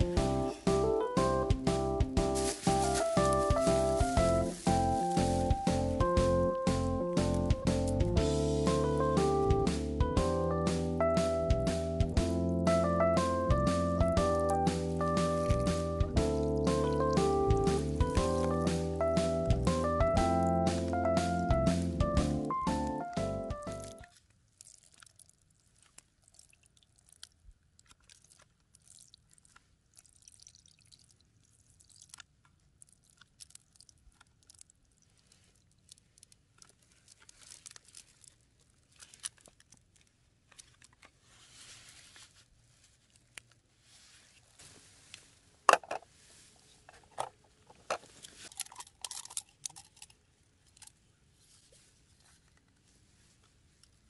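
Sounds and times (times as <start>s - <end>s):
paper carton crinkling: 2.3s - 5.9s, 35.4s - 45.0s.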